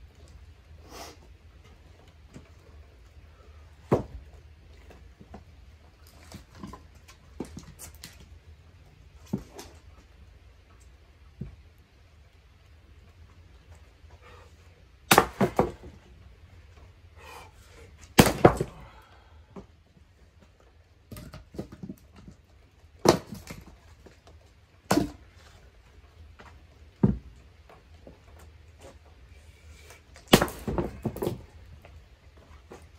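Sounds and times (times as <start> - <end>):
maul striking wood: 3.8 - 4.3, 15.0 - 16.1, 18.0 - 18.9, 23.0 - 23.8, 24.8 - 25.4, 30.2 - 31.5
wood cracking apart: 18.0 - 19.2, 30.1 - 31.7.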